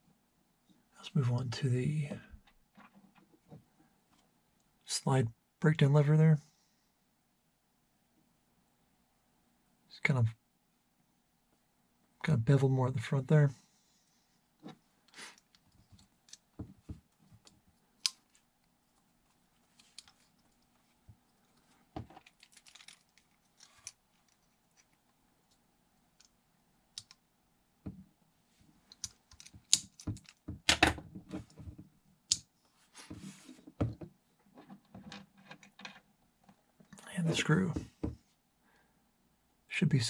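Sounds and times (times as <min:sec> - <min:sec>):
plastic parts clicking: 0:17.4 - 0:18.4, 0:21.4 - 0:25.0, 0:28.9 - 0:31.0.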